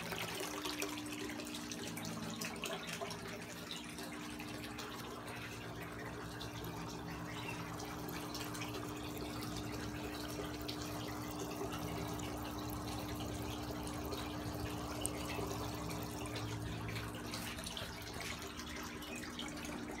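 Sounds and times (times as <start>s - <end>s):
steady low hum: 0.0s - 20.0s
water trickling and splashing: 0.0s - 20.0s.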